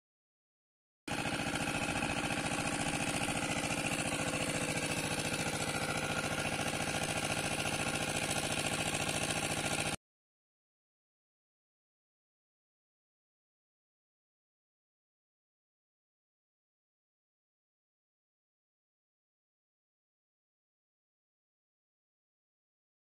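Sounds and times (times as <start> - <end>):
water pump engine running: 1.1 - 10.0.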